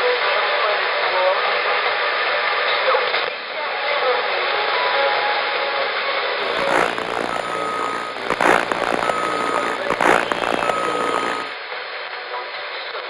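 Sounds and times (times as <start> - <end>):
faint voice on radio: 6.4 - 11.5
crashes of static noise: 6.4 - 11.6
radio static hiss: 6.4 - 11.6
short beeps: 6.4 - 11.6.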